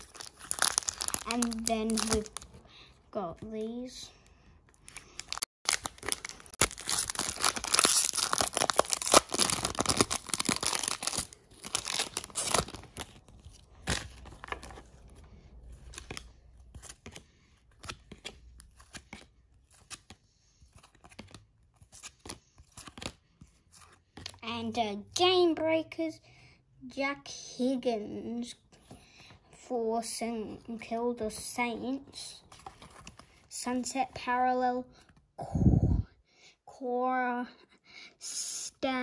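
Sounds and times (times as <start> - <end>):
wrapper tearing and crinkling: 0.0 - 2.5, 4.9 - 14.8.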